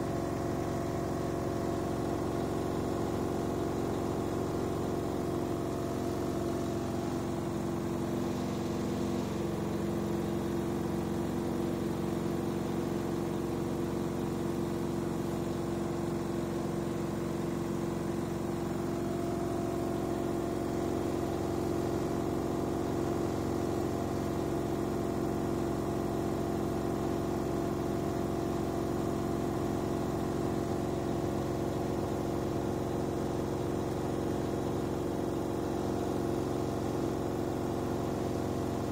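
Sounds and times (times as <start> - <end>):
washing machine spinning: 0.0 - 38.9.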